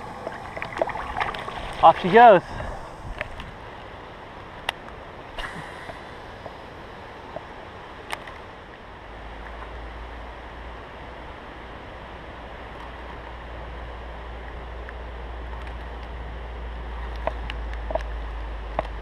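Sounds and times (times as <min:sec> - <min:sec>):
wind hiss on microphone: 0:00.0 - 0:08.4
low wind rumble: 0:00.0 - 0:19.0.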